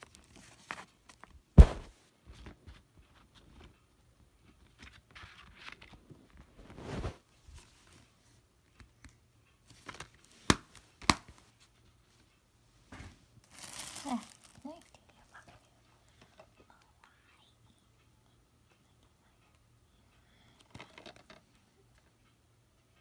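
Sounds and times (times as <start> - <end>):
plastic case rustle: 20.7 - 21.4.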